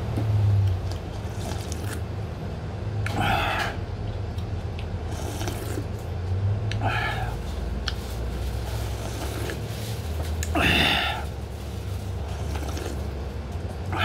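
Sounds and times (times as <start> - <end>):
steady low hum: 0.0 - 14.0
slurping broth from a pot: 1.1 - 2.0, 5.1 - 5.9, 8.8 - 9.7, 12.2 - 13.2.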